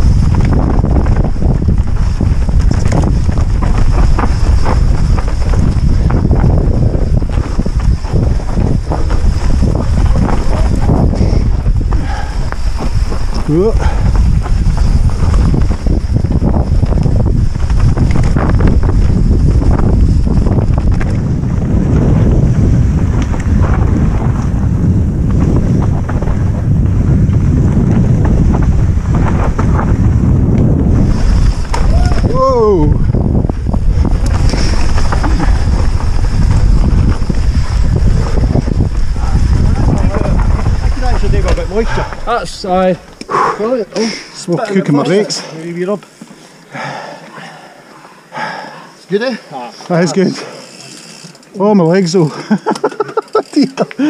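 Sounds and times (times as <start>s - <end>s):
bike frame knocks and clatter: 0.0s - 21.5s, 34.0s - 41.8s
wind buffeting microphone: 0.0s - 45.9s
tyres rumbling on dirt trail: 0.0s - 54.0s.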